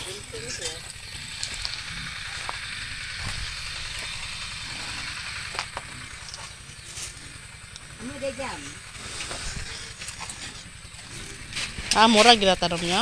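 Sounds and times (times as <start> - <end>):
low wind rumble on microphone: 0.0 - 6.3
outdoor hiss: 0.1 - 12.7.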